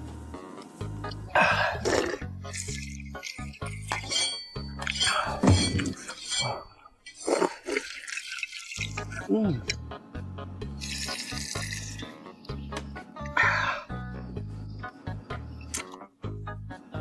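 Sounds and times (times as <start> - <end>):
slurping: 1.4 - 9.4, 10.8 - 12.1
chopsticks clinking on bowl: 2.7 - 6.7
background music with bass line: 9.0 - 17.0.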